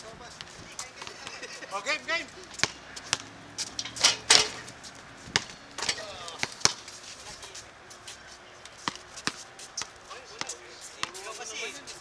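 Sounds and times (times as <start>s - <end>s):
basketball bouncing on hard court: 5.3s - 6.8s.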